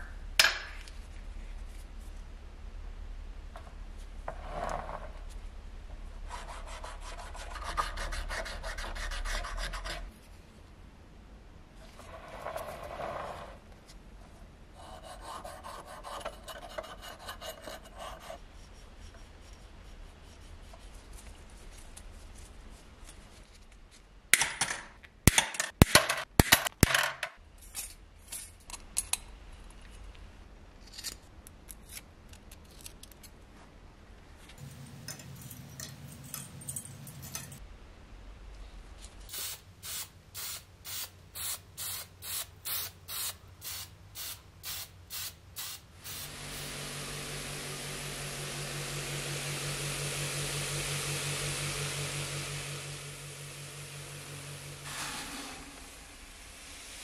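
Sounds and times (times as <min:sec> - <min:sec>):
short hissing bursts: 0:39.3 - 0:46.9.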